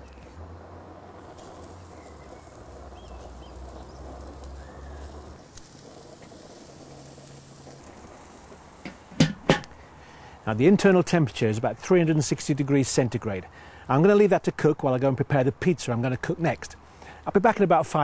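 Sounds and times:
meat sizzling on grill: 0.0 - 18.0
sharp knocks: 8.8 - 9.7.

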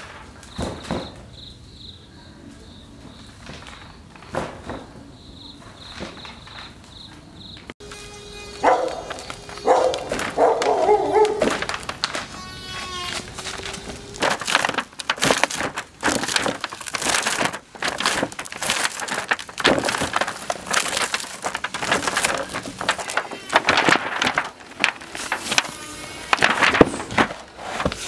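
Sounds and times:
stone crunching and scraping: 12.9 - 28.0.

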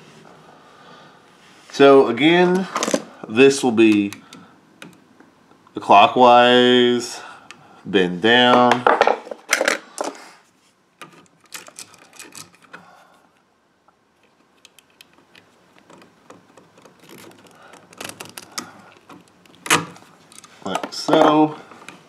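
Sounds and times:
pliers clicking and scraping wire: 11.0 - 12.8, 14.2 - 21.3.

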